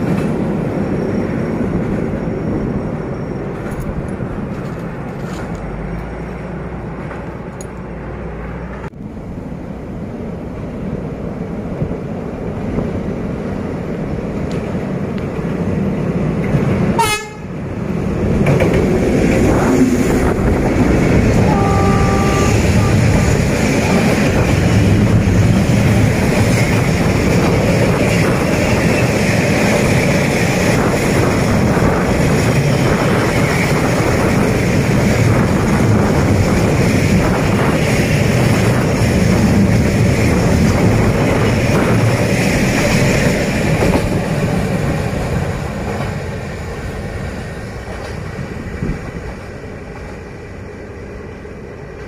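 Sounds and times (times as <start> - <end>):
freight train rolling on rails: 0.0 - 52.0
train horn blast: 17.0 - 17.5, 21.4 - 23.4.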